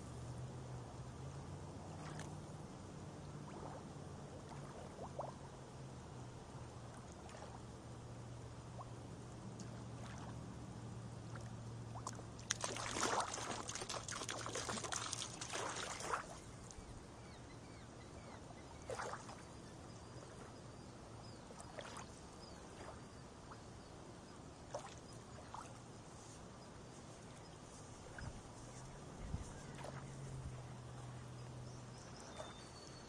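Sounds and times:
water splashing and trickling over stones: 11.4s - 16.8s
waves lapping on pebbles: 12.0s - 16.7s.

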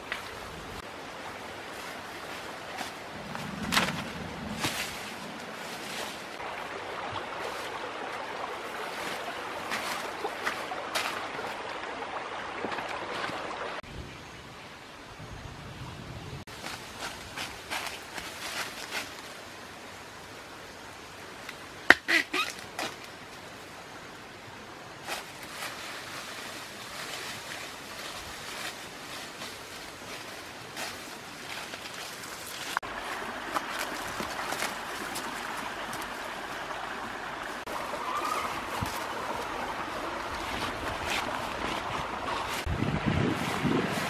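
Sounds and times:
rustling in dry leaf litter: 0.0s - 6.5s, 8.6s - 11.5s, 16.5s - 19.5s, 25.0s - 44.0s.

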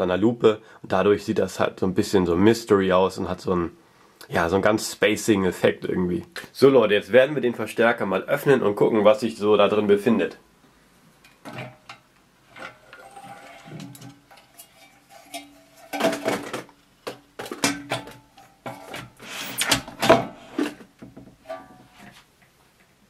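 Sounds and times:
metal plate knocking and scraping: 11.4s - 19.2s, 19.8s - 22.2s.

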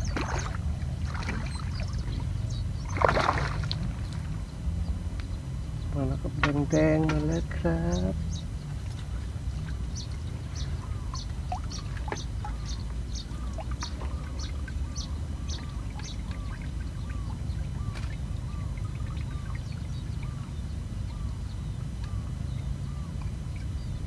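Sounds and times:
lower dipping bird call: 0.0s - 4.4s, 6.7s - 24.0s
steady low rumble: 0.0s - 24.0s.

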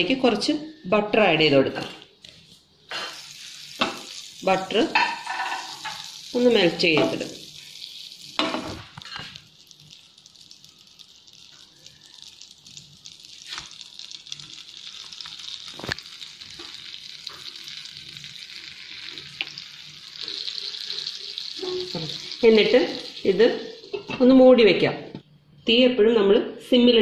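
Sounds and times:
butter sizzling in frying pan: 2.9s - 24.2s.

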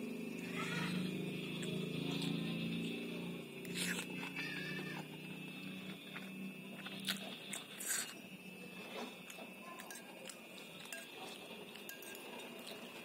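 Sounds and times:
slurping noodles: 3.6s - 4.4s, 6.8s - 8.2s
chewing: 3.6s - 13.0s
metal cutlery clicking on ceramic bowl: 11.8s - 12.8s.

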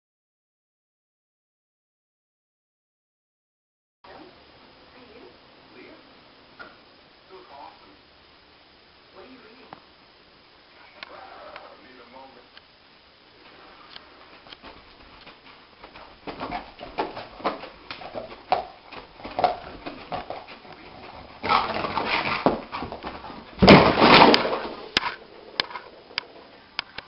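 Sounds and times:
paws scrabbling on carpet: 14.2s - 24.1s
scuffling and thumps: 14.2s - 25.9s.

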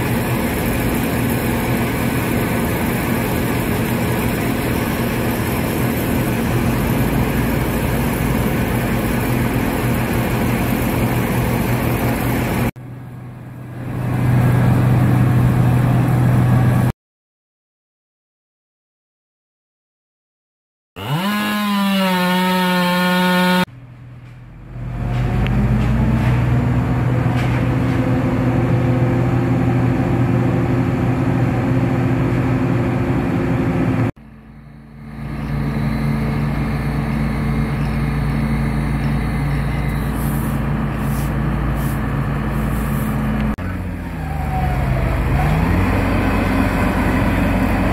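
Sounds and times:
heavy machinery engines droning: 0.0s - 16.9s, 21.0s - 47.9s
skid steer engine: 0.0s - 16.9s, 21.0s - 47.9s
chainsaw revving: 21.0s - 23.7s.

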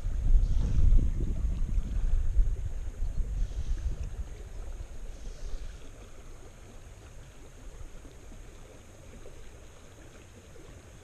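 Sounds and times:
wind buffeting microphone: 0.0s - 8.4s
shallow river burbling: 0.0s - 11.0s.

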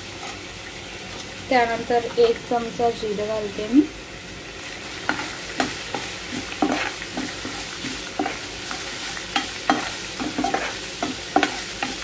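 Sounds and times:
spices sizzling in hot oil: 0.0s - 12.0s
metal spatula scraping pan: 5.1s - 12.0s.

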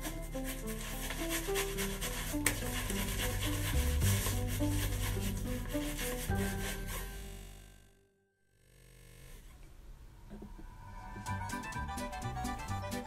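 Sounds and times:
sock rubbing on bearded face: 0.0s - 7.4s
background music with bass line: 0.0s - 7.9s, 10.4s - 13.0s.

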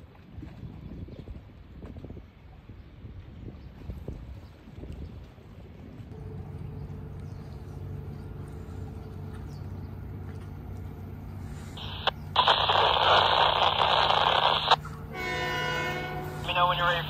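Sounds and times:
steady low hum: 6.0s - 17.0s
radio static hiss: 11.7s - 14.8s, 16.4s - 17.0s
radio transmission: 11.8s - 14.8s, 16.4s - 17.0s.

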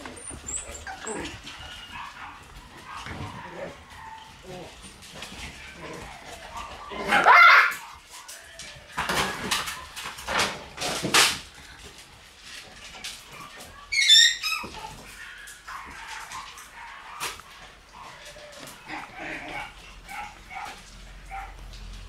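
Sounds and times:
puppy yelping: 0.0s - 8.2s, 13.3s - 21.6s
puppies scuffling: 0.0s - 22.0s.

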